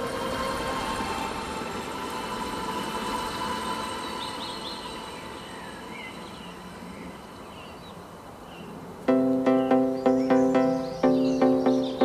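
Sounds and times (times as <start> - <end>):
faint bird chirps: 4.0 - 12.0.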